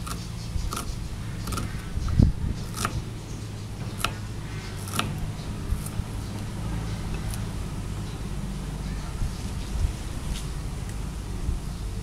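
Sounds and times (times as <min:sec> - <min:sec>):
knife chopping on wooden board: 0:00.0 - 0:01.8, 0:02.7 - 0:03.0, 0:03.8 - 0:06.0
steady low hum: 0:00.0 - 0:12.0.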